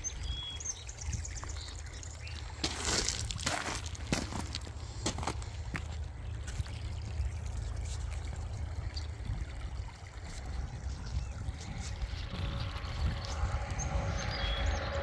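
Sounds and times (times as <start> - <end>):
creek trickling: 0.0 - 15.0
steady low rumble: 3.3 - 15.0.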